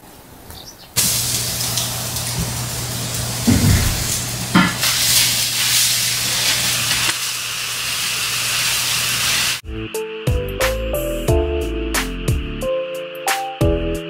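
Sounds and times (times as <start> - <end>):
meat sizzling on a grill: 1.0 - 9.6
music with a beat: 9.6 - 14.0.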